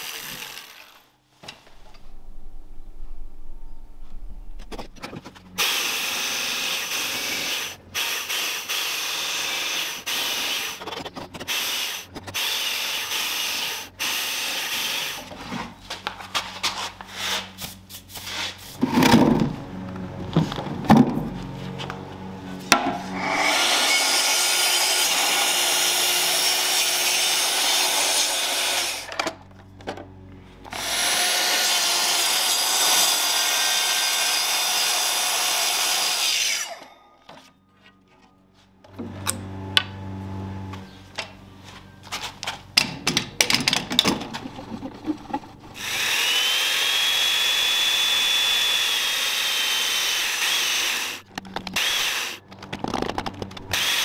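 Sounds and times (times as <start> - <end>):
chain mortiser cutting wood: 0.0 - 1.1, 22.7 - 29.4, 30.6 - 36.9, 45.3 - 54.0
tool knocks and clatter: 22.7 - 23.1, 42.4 - 44.4
motor whine spinning up: 38.9 - 41.1.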